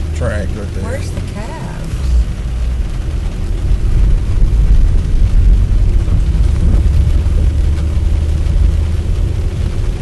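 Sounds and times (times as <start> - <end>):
car tyre and road noise: 0.0 - 10.0.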